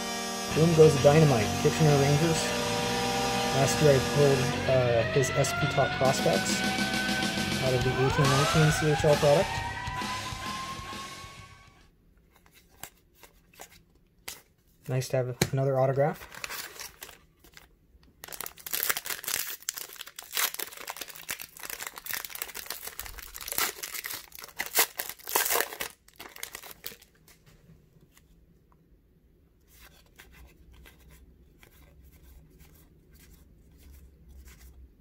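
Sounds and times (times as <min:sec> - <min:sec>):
foil wrapper crinkling: 0:16.1 - 0:27.3.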